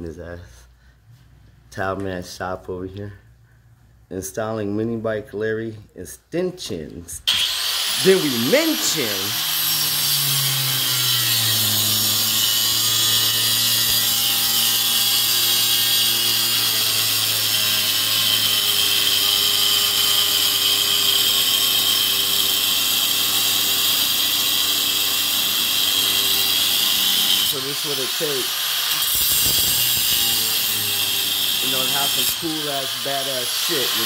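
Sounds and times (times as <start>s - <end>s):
angle grinder cutting steel: 7.3s - 34.0s.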